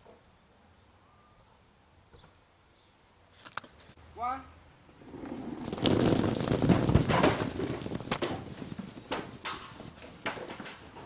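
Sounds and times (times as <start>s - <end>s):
rubber balls bouncing on paving: 5.0s - 11.0s.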